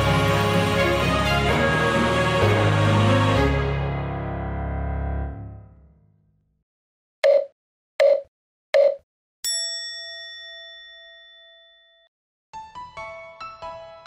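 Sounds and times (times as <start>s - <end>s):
electronic countdown beeps: 7.2s - 9.0s
light keyboard music: 12.5s - 14.0s.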